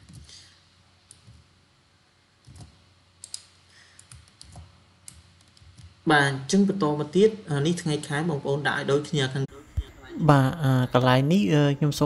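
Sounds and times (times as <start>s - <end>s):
computer keyboard clicks: 2.4s - 5.9s.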